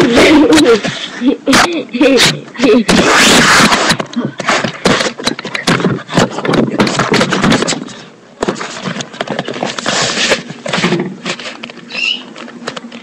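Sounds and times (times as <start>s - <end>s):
brief high squeak: 11.9s - 12.3s.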